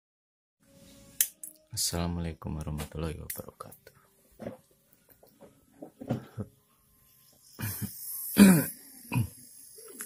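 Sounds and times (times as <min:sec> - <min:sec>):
man coughing: 0:08.4 - 0:09.4
throat clearing: 0:08.4 - 0:09.4.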